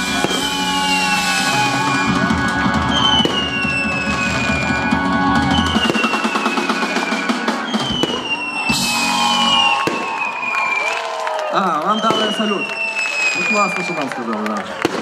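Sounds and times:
music with a beat: 0.0 - 10.0
fireworks crackling and popping: 0.0 - 15.0
falling whistle-like tone: 0.2 - 11.0, 11.6 - 14.2.

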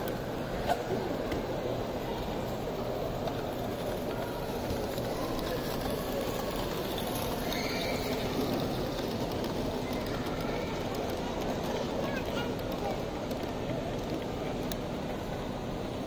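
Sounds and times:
exhibition hall din: 0.0 - 16.0
model steam locomotive running: 0.0 - 16.0.

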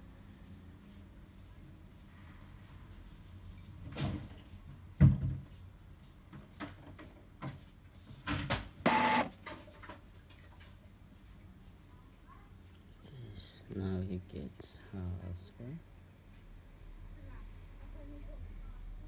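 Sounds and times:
printer motor whir: 8.8 - 9.3.

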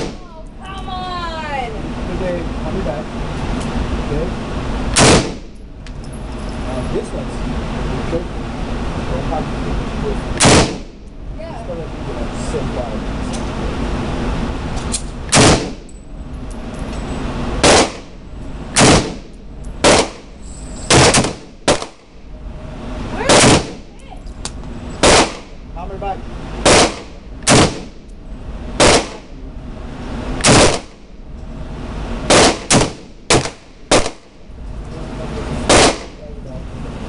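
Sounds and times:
rifle shots indoors: 5.0 - 5.5, 10.4 - 10.8, 17.6 - 18.1, 18.8 - 19.2, 20.9 - 22.0, 25.0 - 25.5, 26.6 - 27.9, 28.8 - 29.2, 30.4 - 31.0.

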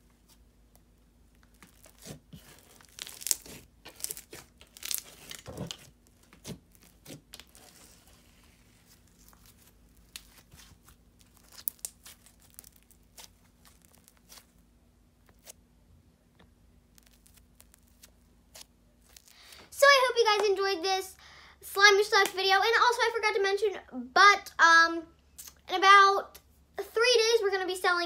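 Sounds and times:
slime crackling and squishing: 0.2 - 14.6, 16.8 - 19.6.

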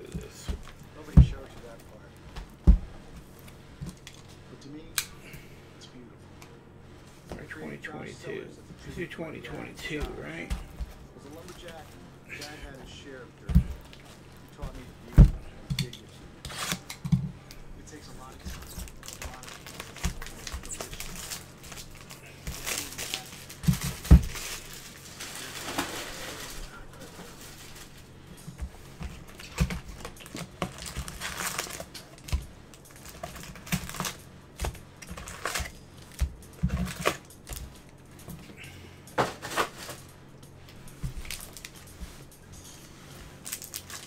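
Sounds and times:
foil wrappers crinkling and tearing: 8.7 - 40.1, 40.8 - 44.0.

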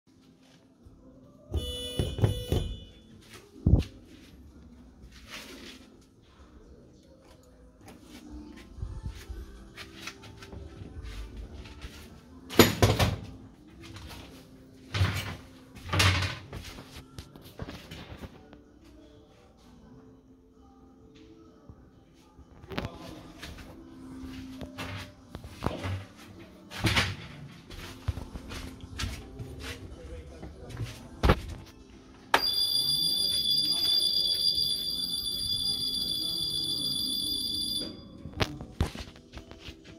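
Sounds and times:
bus stop buzzer tone: 1.6 - 3.0.

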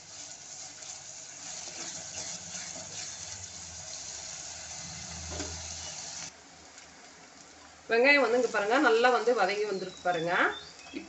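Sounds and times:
wooden spatula stirring: 0.0 - 6.3
aromatics sizzling in oil: 0.0 - 11.0.

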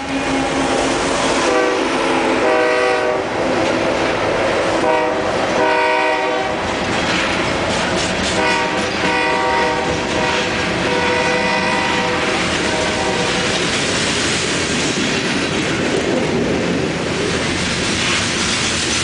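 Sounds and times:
train wheels clacking over rail joints: 0.0 - 19.0
locomotive horn short blasts: 1.4 - 3.3, 4.8 - 6.6, 8.4 - 13.3.

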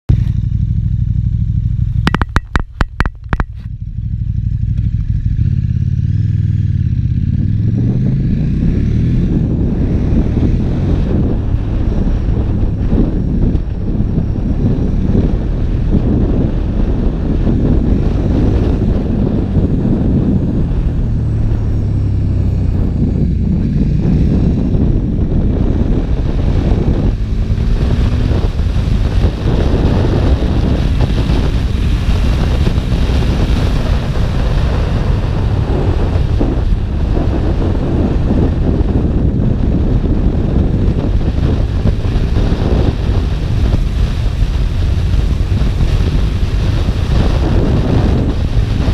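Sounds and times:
motorcycle engine running: 0.1 - 48.9
wind buffeting microphone: 5.2 - 48.9.

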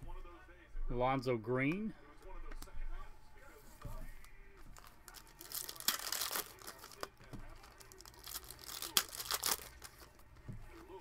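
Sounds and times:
foil pack tearing and crinkling: 4.8 - 10.2.

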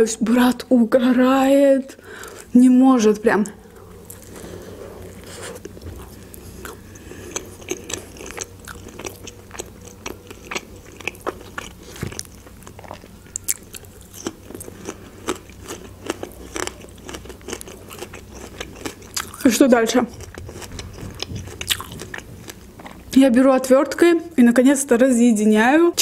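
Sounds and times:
chewing with crisp crunches: 3.6 - 23.2.

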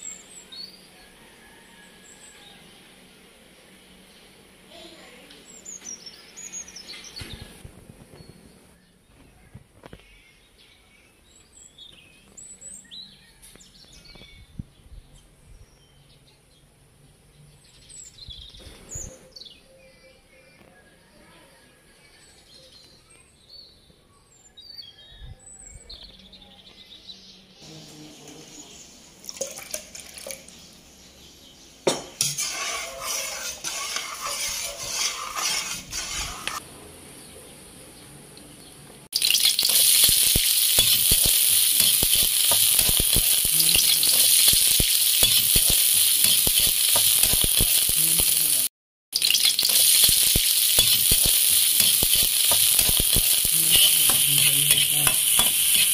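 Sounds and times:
onions frying in hot oil: 31.9 - 36.6, 39.2 - 55.9
stirring scrape in wok: 32.2 - 36.6
birds chirping: 37.1 - 55.9.

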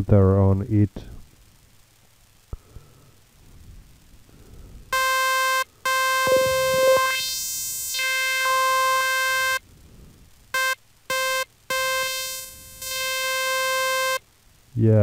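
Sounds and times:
buzzy synthesizer notes: 5.0 - 9.6, 10.6 - 14.2.

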